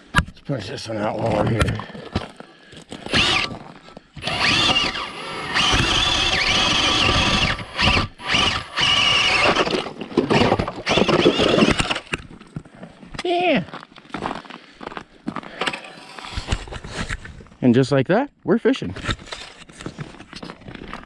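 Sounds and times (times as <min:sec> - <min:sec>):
electric ice auger whining: 0:03.0 - 0:03.6, 0:04.2 - 0:12.2.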